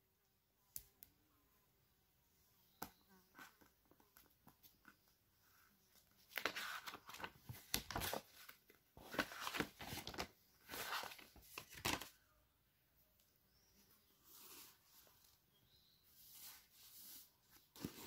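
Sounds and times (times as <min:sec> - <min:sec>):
notebook pages rustling: 0:03.4 - 0:12.2, 0:16.1 - 0:18.0.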